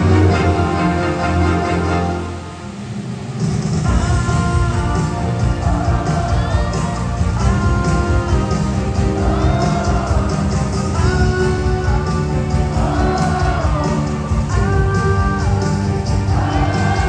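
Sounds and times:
driving beat with heavy bass: 0:03.4 - 0:17.0.

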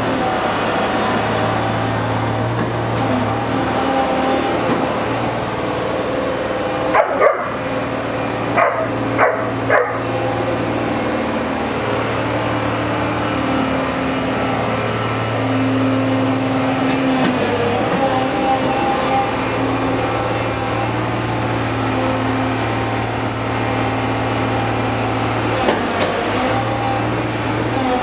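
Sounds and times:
low motor hum: 0:00.0 - 0:28.0
puppies barking: 0:06.9 - 0:07.8, 0:08.5 - 0:10.3.

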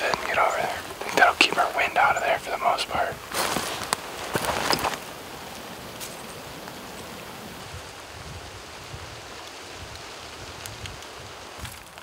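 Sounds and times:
rustling: 0:00.0 - 0:07.5
steady outdoor hiss: 0:00.0 - 0:12.0.

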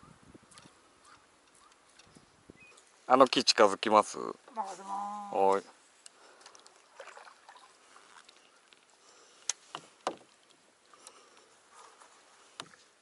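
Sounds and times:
paddle swishing in water: 0:06.4 - 0:13.0.

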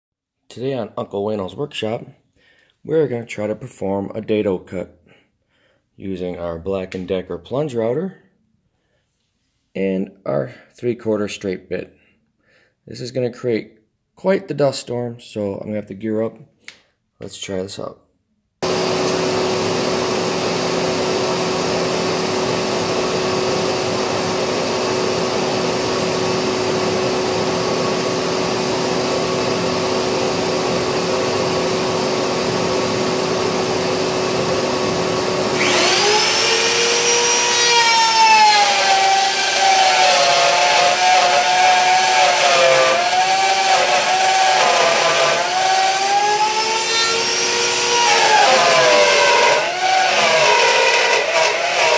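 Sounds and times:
dust extraction vacuum running: 0:18.6 - 0:51.9
router whining and cutting wood: 0:18.6 - 0:51.9.

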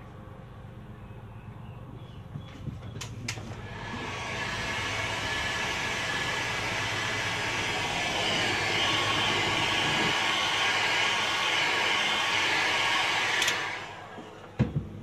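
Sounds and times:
hot air gun blowing: 0:03.6 - 0:14.3.

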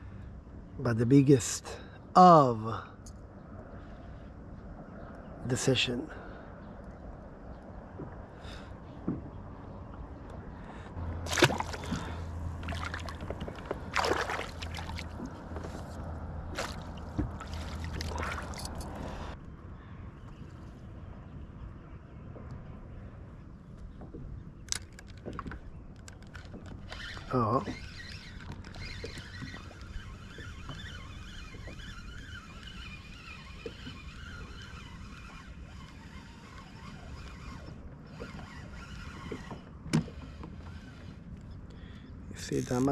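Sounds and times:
net splashing in water: 0:11.2 - 0:15.3, 0:16.5 - 0:18.6
fishing reel gears whirring: 0:26.3 - 0:41.3.

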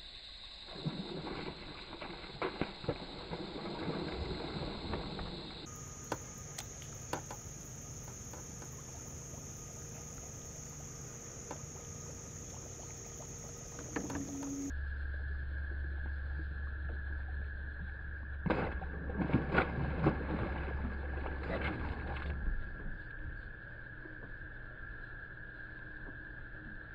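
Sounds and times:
lure splashing on water: 0:00.8 - 0:14.7
high-pitched whine: 0:04.5 - 0:19.4.

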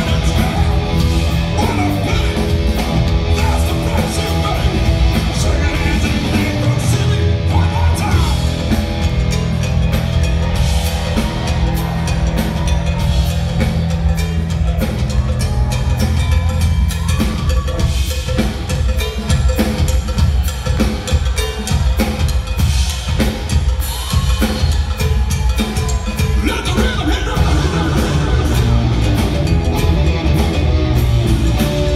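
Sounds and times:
person singing: 0:00.0 - 0:08.6, 0:26.2 - 0:29.2
distorted electric guitar: 0:00.0 - 0:17.1, 0:26.7 - 0:31.9
bass guitar: 0:00.0 - 0:20.4, 0:25.4 - 0:31.9
drum kit: 0:00.0 - 0:31.9.

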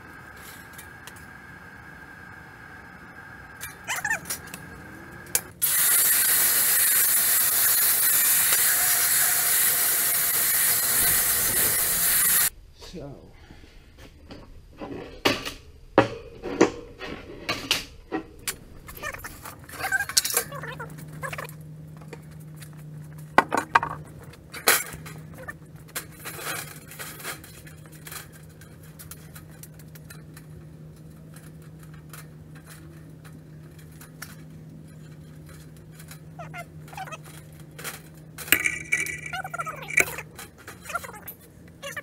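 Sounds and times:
low hum: 0:24.0 - 0:40.9
steel sheets clattering on table: 0:37.8 - 0:41.0.

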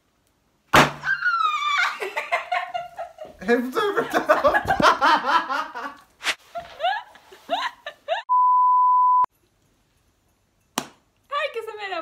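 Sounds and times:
squeals of laughter: 0:01.1 - 0:02.7
censor bleep tone: 0:08.3 - 0:09.3.

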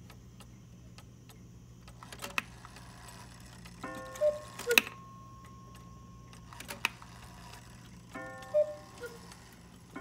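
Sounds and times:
clock mechanism clicking: 0:00.0 - 0:10.0
clock ringing tone: 0:03.8 - 0:10.0
two-note cuckoo call: 0:04.1 - 0:05.0, 0:08.3 - 0:09.4.

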